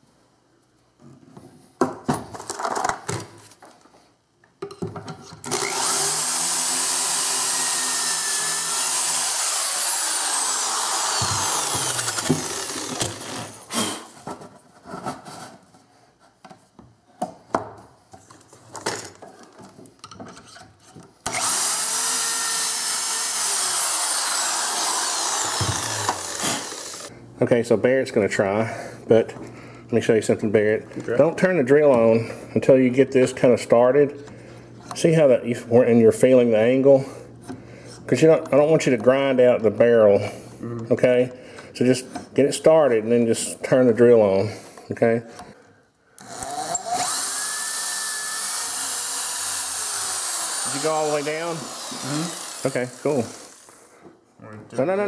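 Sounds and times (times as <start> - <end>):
cordless drill whining: 5.5 - 13.7, 21.2 - 27.1, 46.2 - 53.9.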